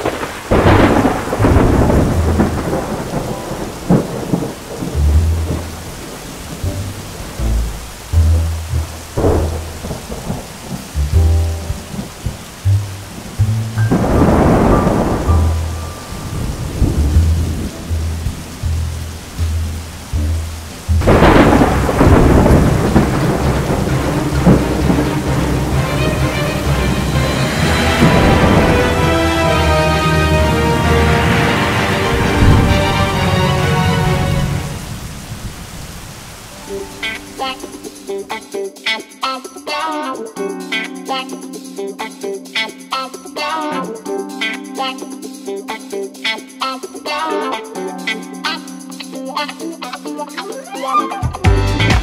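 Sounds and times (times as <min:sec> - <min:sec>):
thunder rumbling: 0:00.0 - 0:38.2
steady rain: 0:00.0 - 0:39.8.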